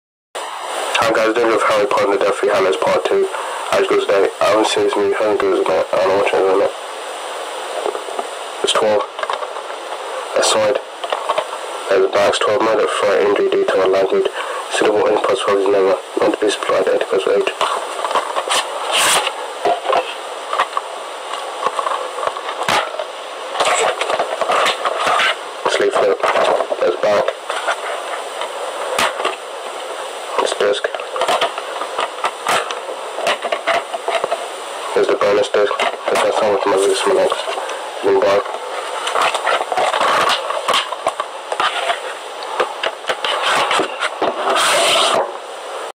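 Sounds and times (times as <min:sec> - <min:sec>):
plastic scraping: 0:17.4 - 0:29.4, 0:30.4 - 0:45.4
rustling: 0:17.5 - 0:45.3
plastic case rubbing and knocking: 0:30.9 - 0:34.4, 0:38.5 - 0:45.3.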